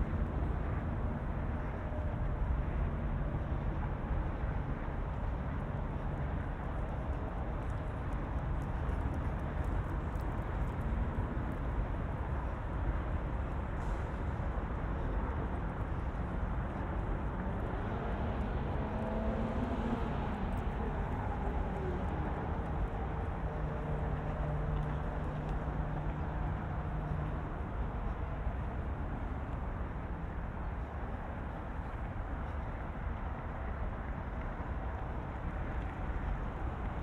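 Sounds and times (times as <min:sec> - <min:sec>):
low engine hum: 0:00.0 - 0:37.0
cars passing: 0:16.3 - 0:30.5.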